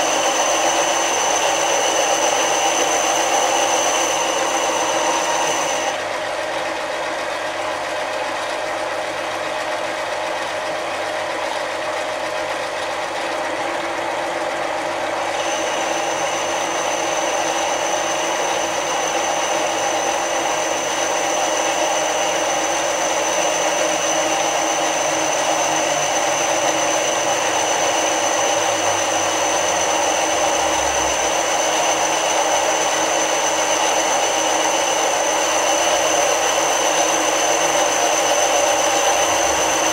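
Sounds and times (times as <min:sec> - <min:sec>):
boring bar cutting metal: 0:00.0 - 0:06.0, 0:15.3 - 0:39.9
thin high whine: 0:00.0 - 0:06.0, 0:15.2 - 0:39.9
lathe running: 0:00.0 - 0:39.9.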